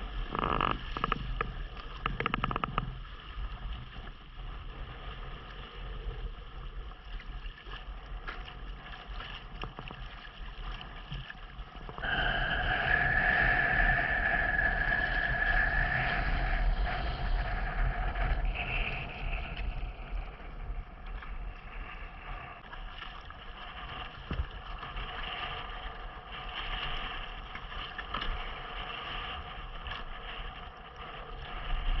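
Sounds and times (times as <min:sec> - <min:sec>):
waves slapping and splashing: 0:00.0 - 0:32.0
steady low rumble: 0:11.6 - 0:32.0
wind buffeting microphone: 0:11.9 - 0:22.6.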